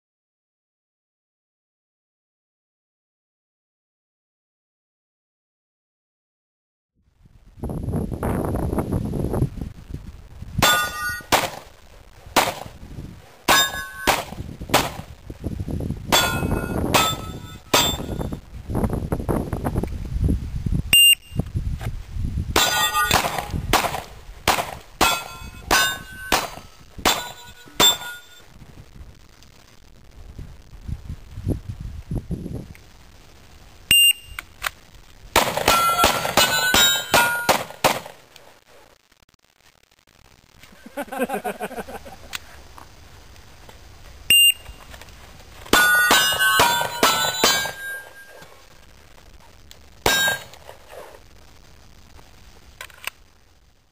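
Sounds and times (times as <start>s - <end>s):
steel plates clanging: 10.6s - 11.3s, 13.5s - 14.3s, 16.2s - 18.4s, 22.6s - 23.6s, 24.7s - 28.4s, 35.6s - 37.6s, 45.7s - 48.5s, 50.1s - 50.8s
handgun shots: 10.6s - 11.7s, 12.4s - 12.7s, 13.5s - 15.1s, 22.6s - 28.0s.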